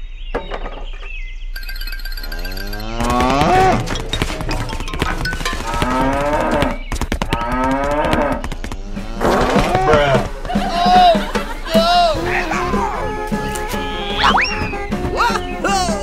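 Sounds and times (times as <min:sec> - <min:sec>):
cow mooing: 0:02.3 - 0:04.8, 0:05.6 - 0:06.8, 0:07.4 - 0:10.3.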